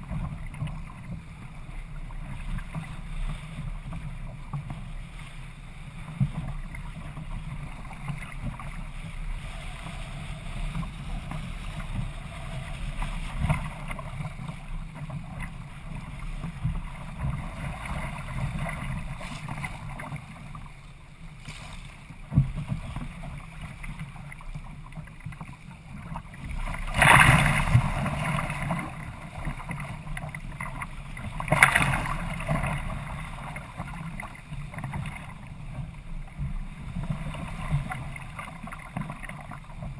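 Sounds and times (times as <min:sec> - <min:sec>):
water rushing along hull: 0:00.0 - 0:39.9
wind buffeting microphone: 0:05.8 - 0:20.7.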